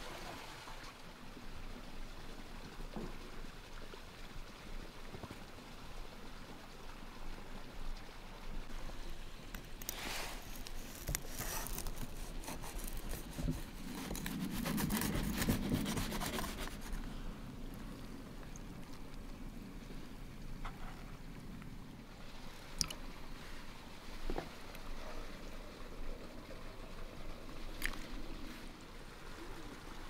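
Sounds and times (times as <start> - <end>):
faint background hiss: 0.0 - 30.0
knife cutting crisp bread crust: 9.8 - 16.9.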